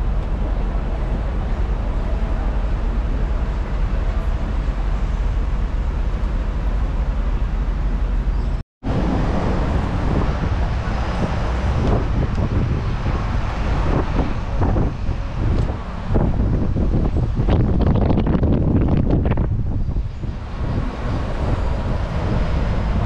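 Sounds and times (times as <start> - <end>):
vehicle rumble: 0.0 - 23.0
wind buffeting microphone: 8.8 - 23.0.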